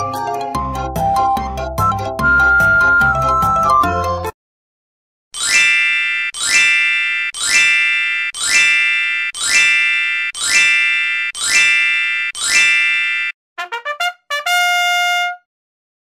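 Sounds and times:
bright chime ringing: 5.4 - 13.3.

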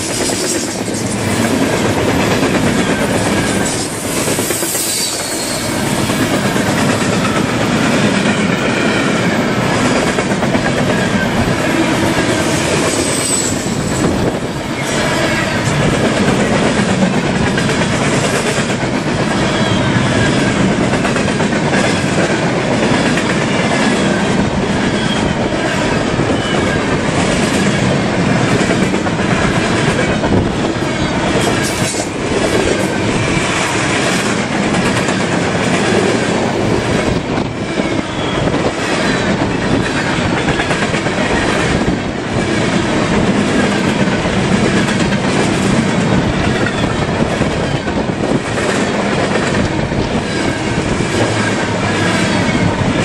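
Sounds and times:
train wheels clattering on rails: 0.0 - 53.0
high-pitched flange squeals: 2.9 - 5.9, 11.0 - 15.8.

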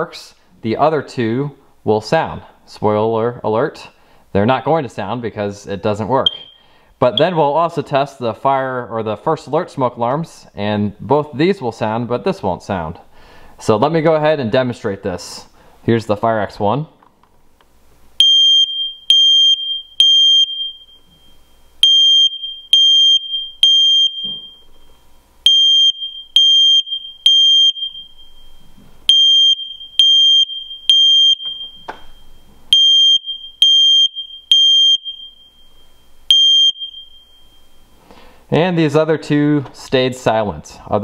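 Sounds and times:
smoke alarm beeping: 6.3 - 7.4, 18.2 - 38.0.

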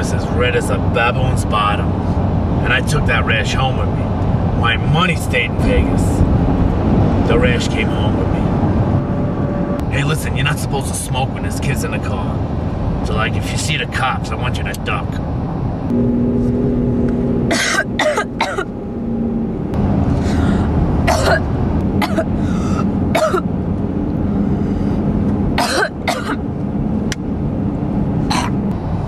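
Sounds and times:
car interior drone: 0.0 - 29.0
person coughing and clearing throat: 17.5 - 18.7, 21.1 - 22.4, 23.1 - 23.5, 25.6 - 26.4, 28.3 - 28.6.

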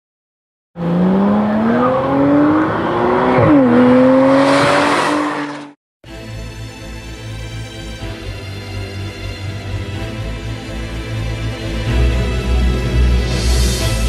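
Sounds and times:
car engine accelerating hard: 0.8 - 5.8.

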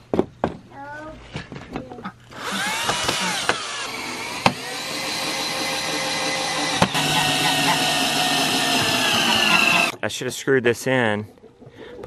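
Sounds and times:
cordless drill motor whine: 2.3 - 9.9.

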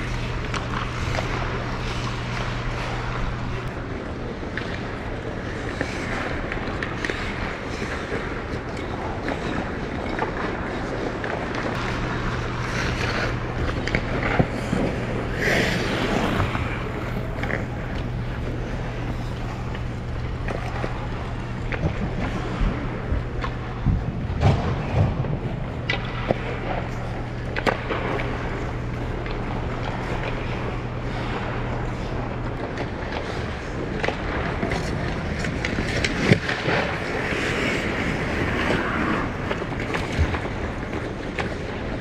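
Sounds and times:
ice skates scraping on ice: 0.0 - 23.8, 24.4 - 42.0
low hum: 0.0 - 42.0
skate blade clicks: 0.0 - 42.0.

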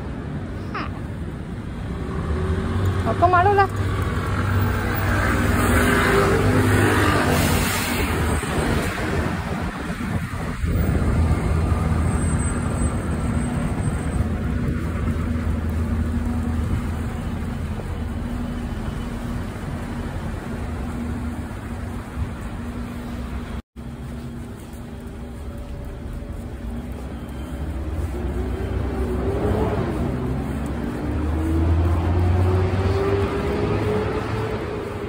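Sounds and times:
vehicle engine humming: 8.3 - 35.0.

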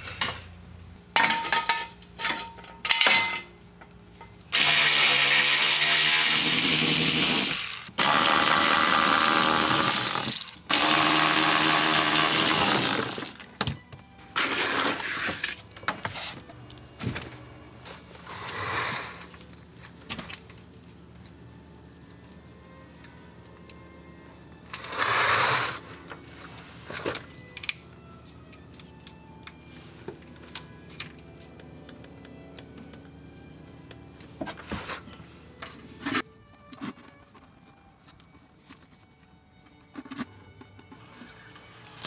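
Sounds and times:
electric ratchet spinning bolts: 4.5 - 13.5
clicks and knocks of parts: 26.1 - 33.1, 35.6 - 41.0.

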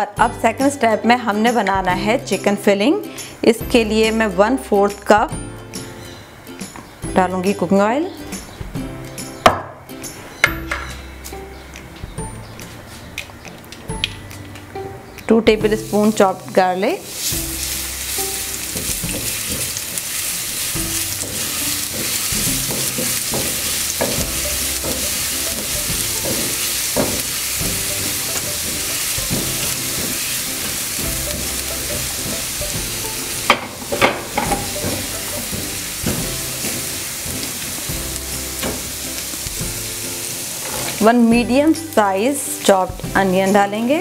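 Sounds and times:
garlic sizzling in hot oil: 15.6 - 44.0.

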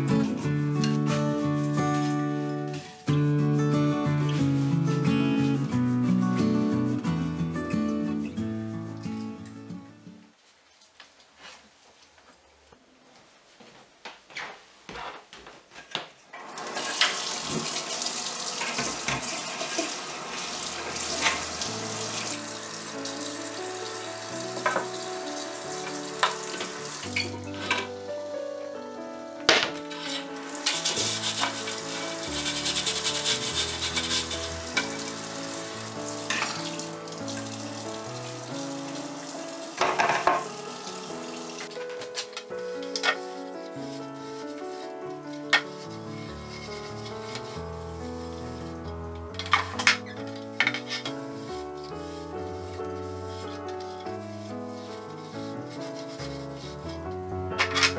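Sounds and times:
soft background music: 0.0 - 10.3, 20.8 - 57.9
tap running into sink: 16.7 - 20.0, 20.8 - 22.3, 39.8 - 40.5.

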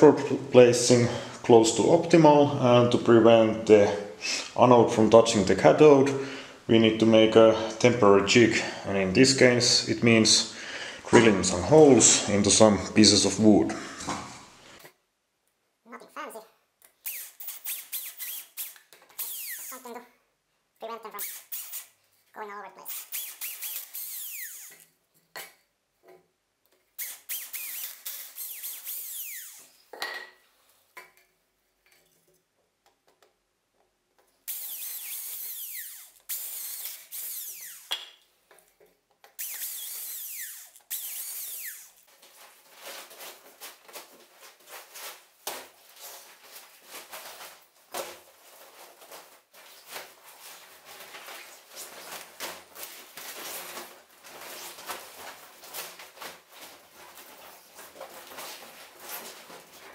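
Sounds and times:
cordless drill boring wood: 17.1 - 19.8, 22.9 - 24.9, 27.0 - 29.7, 34.5 - 38.0, 39.4 - 42.0
plastic crinkling and rustling: 42.0 - 59.9.

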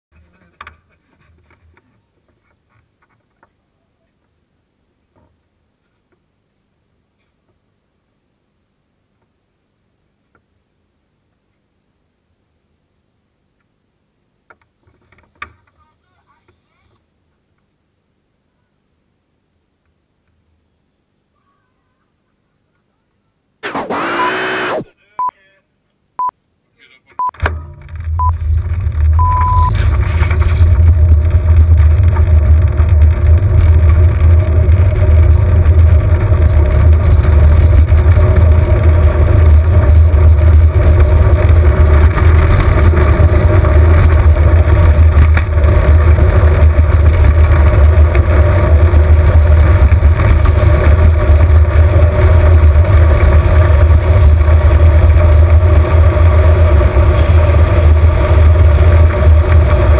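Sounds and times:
short electronic beep: 23.6 - 25.4, 29.2 - 29.8
cart wheels rolling on asphalt: 27.6 - 59.9.

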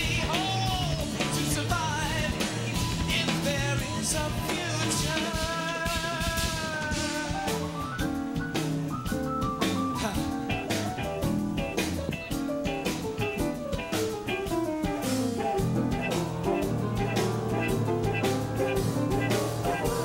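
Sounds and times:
lead vocalist singing: 0.0 - 7.8
rock band playing: 0.0 - 20.0.

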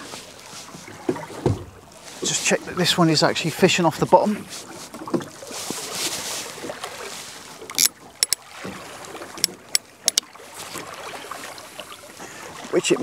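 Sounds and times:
water lapping against boat hull: 0.0 - 13.0
fishing reel clicks: 7.7 - 8.4.

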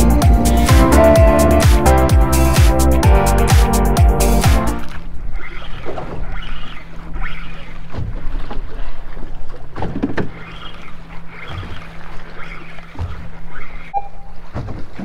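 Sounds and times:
water slapping boat hull: 4.8 - 15.0.

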